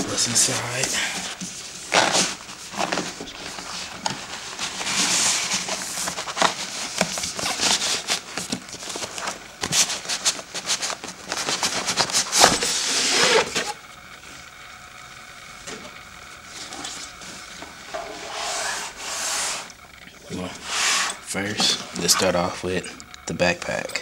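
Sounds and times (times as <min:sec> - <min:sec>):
cardboard rustling and scraping: 0:00.0 - 0:13.8, 0:16.5 - 0:19.7, 0:20.4 - 0:22.5
box sliding: 0:18.1 - 0:19.7.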